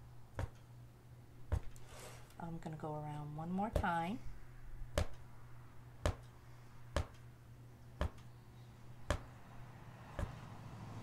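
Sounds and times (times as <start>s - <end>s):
low steady hum: 0.0s - 11.0s
punch needle tapping cloth: 0.4s - 0.6s, 4.9s - 5.2s, 6.0s - 6.3s, 6.9s - 7.2s, 9.1s - 9.3s, 10.2s - 10.4s.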